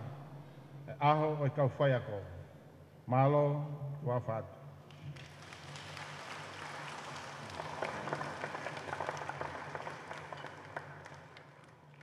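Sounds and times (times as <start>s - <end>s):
audience applauding: 5.1s - 12.0s.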